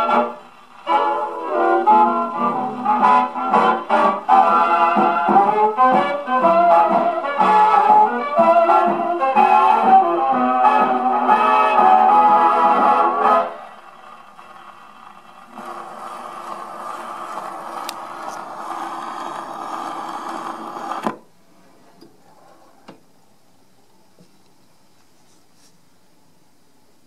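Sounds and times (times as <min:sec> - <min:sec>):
needle scratchy hiss in groove: 0:00.0 - 0:21.1
gramophone record music: 0:00.0 - 0:27.0.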